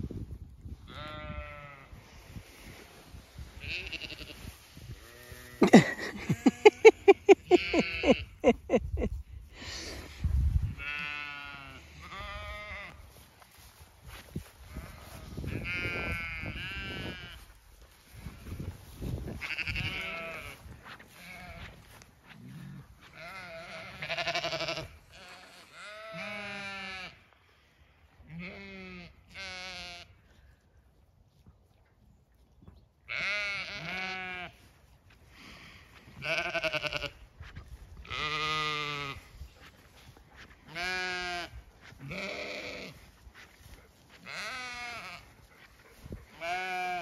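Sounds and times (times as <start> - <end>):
sheep bleating: 0.9 - 2.0, 3.6 - 8.3, 10.8 - 13.1, 14.7 - 17.4, 19.4 - 27.3, 28.3 - 30.1, 33.1 - 34.7, 36.2 - 37.2, 38.0 - 39.3, 40.4 - 43.1, 44.1 - 45.6, 46.3 - 47.0
short loud sheep calls: 0.9 - 2.0, 3.5 - 6.8, 10.7 - 13.1, 19.4 - 21.9, 23.0 - 27.3, 28.3 - 30.1, 33.1 - 34.7, 36.2 - 37.2, 38.1 - 39.3, 40.7 - 43.1, 44.1 - 45.6, 46.3 - 47.0.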